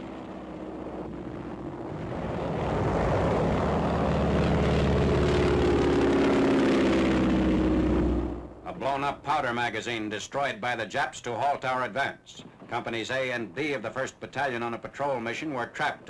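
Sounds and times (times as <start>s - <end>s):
propeller plane engine droning: 0.0s - 10.1s.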